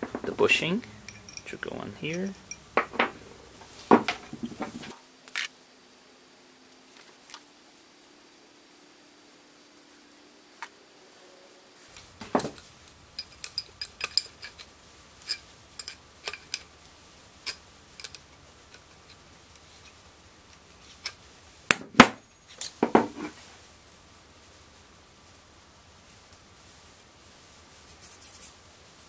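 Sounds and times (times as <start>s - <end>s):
metal fittings clinking: 0.0s - 4.9s, 11.9s - 16.8s, 17.4s - 21.2s.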